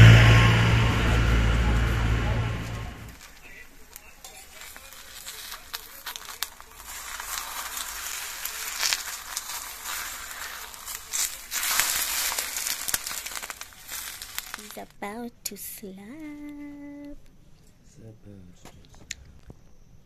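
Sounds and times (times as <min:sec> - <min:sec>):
egg sizzling in a pan: 0:03.2 - 0:15.1
metal spatula turning egg: 0:04.2 - 0:14.9.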